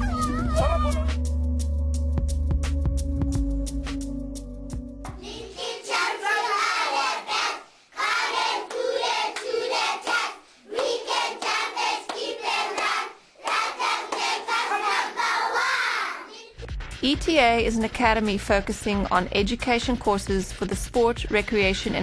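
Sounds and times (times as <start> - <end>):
young children singing: 5.2 - 16.6
children clapping: 8.0 - 15.1.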